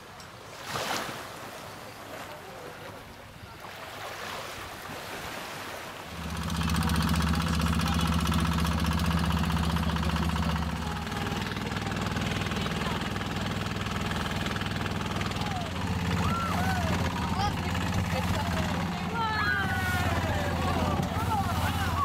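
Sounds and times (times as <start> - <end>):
soft wash of water: 0.0 - 22.0
boat engine running: 6.0 - 22.0.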